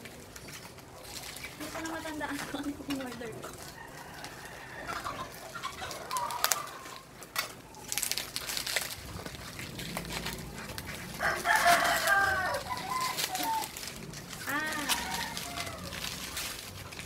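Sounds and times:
plastic packaging crackling: 0.0s - 17.0s
rooster crowing: 3.7s - 7.0s, 11.0s - 13.9s, 14.5s - 16.3s.

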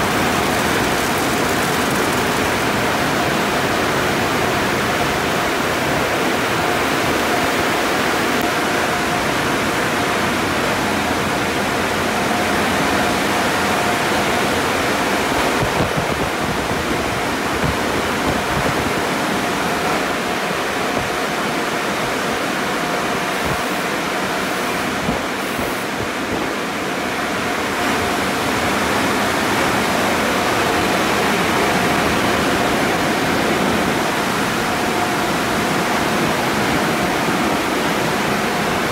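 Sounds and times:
water spraying onto car: 0.0s - 3.9s
machine whine: 0.0s - 15.3s.

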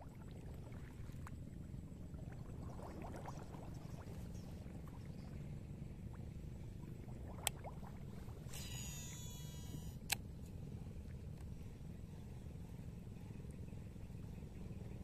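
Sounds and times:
shallow water splashing and dripping: 0.0s - 5.4s, 6.1s - 8.6s
steady low rumble: 0.0s - 15.0s.

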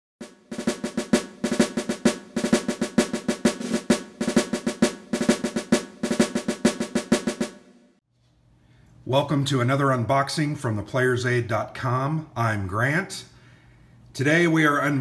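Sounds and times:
snare drum strokes and rolls: 0.2s - 7.9s.

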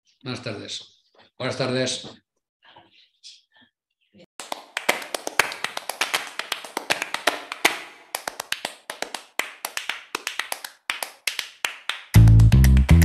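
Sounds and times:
low bass notes: 12.2s - 13.0s.

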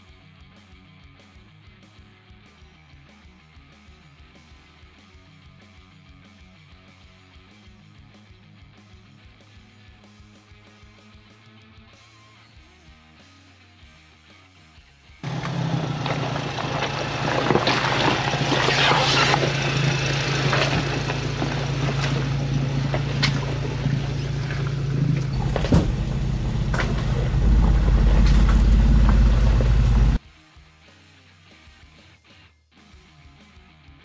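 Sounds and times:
truck exhaust rumble: 15.2s - 30.2s
tyres crunching over rocks: 15.2s - 30.2s.

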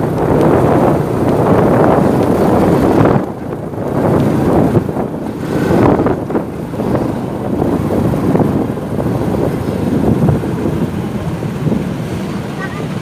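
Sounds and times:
motorcycle riding in traffic: 0.0s - 13.0s
wind buffeting microphone: 0.0s - 13.0s.

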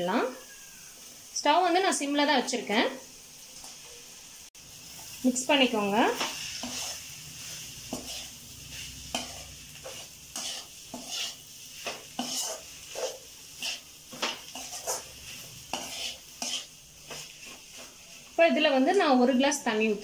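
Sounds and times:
faint sizzle: 0.0s - 20.0s
metal spoon scraping a pan: 5.8s - 18.4s.

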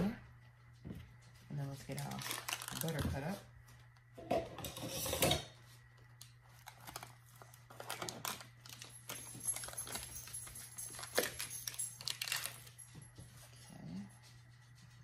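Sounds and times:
paper wrapper crinkling and tearing: 1.9s - 3.4s, 6.2s - 10.0s, 10.9s - 12.7s.

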